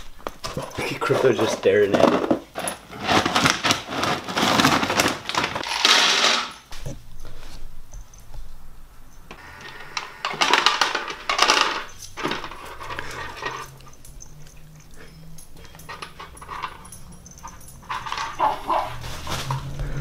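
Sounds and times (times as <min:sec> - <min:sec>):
dry kibble rattling in plastic tray: 0:00.8 - 0:06.6, 0:17.5 - 0:20.0.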